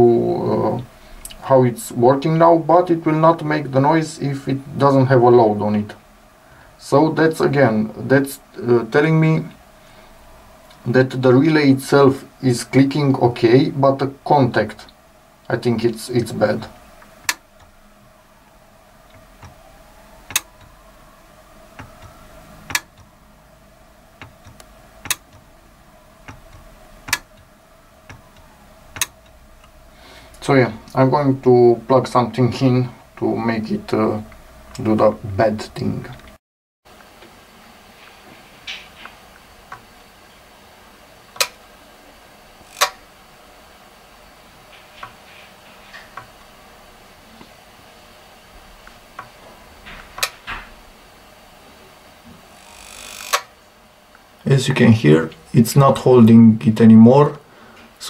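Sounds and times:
relay clicking: 17.0 - 17.8, 20.2 - 20.8, 21.8 - 23.1, 24.2 - 25.5, 26.2 - 27.5, 28.1 - 30.5, 42.6 - 43.0, 48.8 - 50.7, 52.6 - 53.5.

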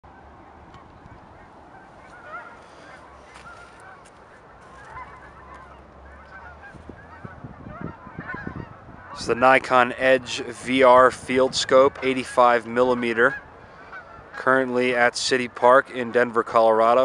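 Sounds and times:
geese honking: 0.1 - 17.0.

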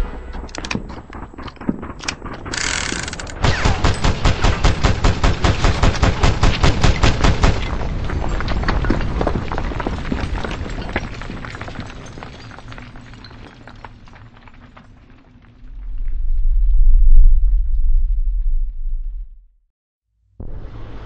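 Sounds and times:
low rumble: 0.0 - 3.6, 15.4 - 19.7
machine-gun fire: 0.1 - 8.1.

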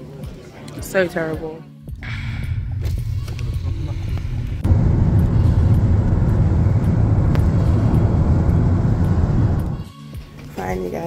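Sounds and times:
road vehicle rumble: 2.4 - 9.8.

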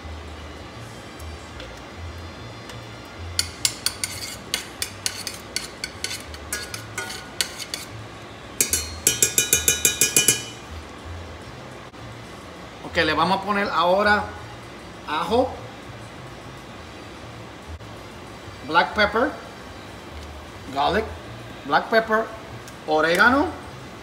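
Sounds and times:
spoon tapping a saucepan: 3.4 - 7.8, 8.6 - 10.7
metal spoon clinking on glass: 3.4 - 7.9, 8.6 - 10.7.

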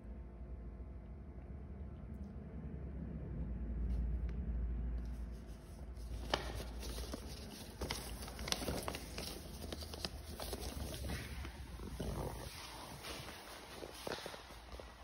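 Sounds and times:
paper rustling and crinkling: 5.0 - 15.0.

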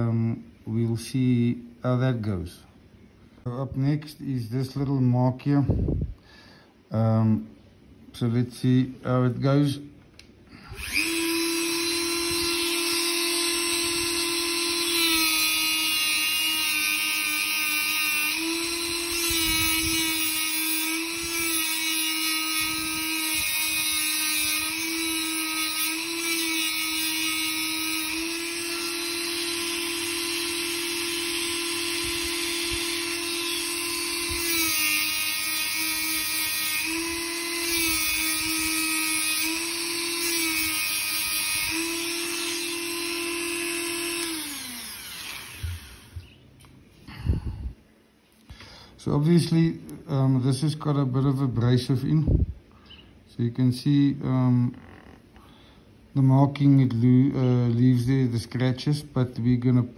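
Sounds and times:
rotary tool grinding metal: 10.7 - 46.4.

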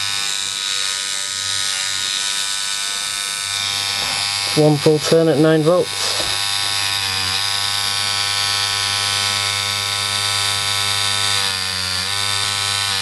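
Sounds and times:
tattoo machine buzzing: 0.0 - 13.0.

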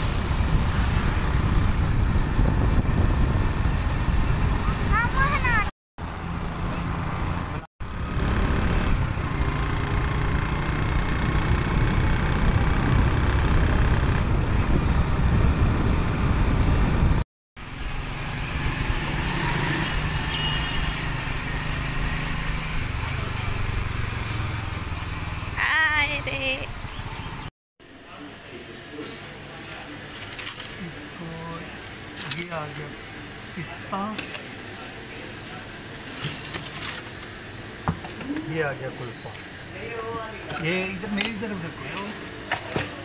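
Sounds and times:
wind buffeting microphone: 0.0 - 5.6, 11.5 - 17.2
motorcycle engine running: 6.3 - 16.2, 19.8 - 27.5.

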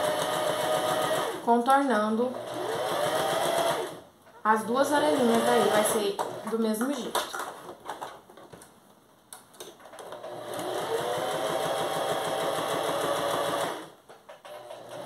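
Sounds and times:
sewing machine motor whine: 0.0 - 1.4, 2.4 - 4.0, 5.0 - 6.5, 10.2 - 13.9.

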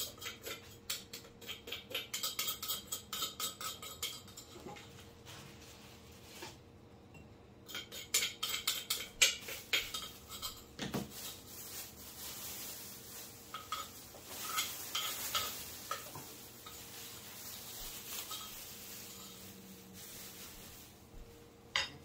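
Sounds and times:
utensils clinking against dishes: 0.0 - 5.1, 7.1 - 11.4, 12.2 - 19.7, 21.7 - 22.0.

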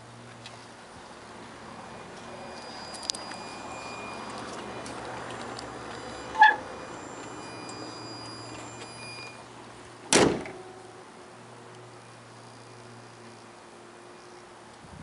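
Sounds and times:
car bonnet slamming shut: 10.1 - 10.8.

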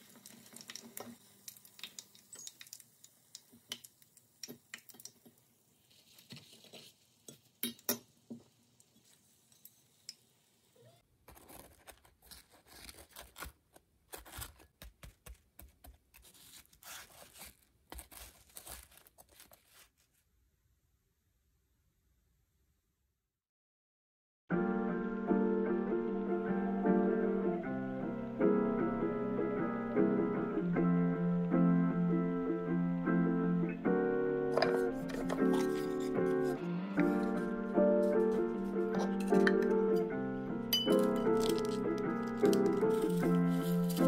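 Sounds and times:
oil sizzling faintly: 0.0 - 11.0
paper towel crinkling: 11.3 - 20.4, 34.6 - 39.6, 40.9 - 44.0.

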